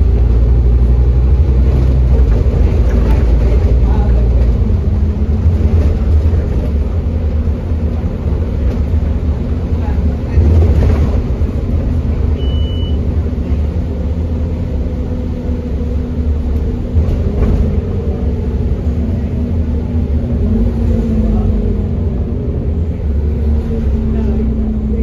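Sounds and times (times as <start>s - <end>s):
bus engine drone: 0.0s - 25.0s
high beep: 12.4s - 13.0s.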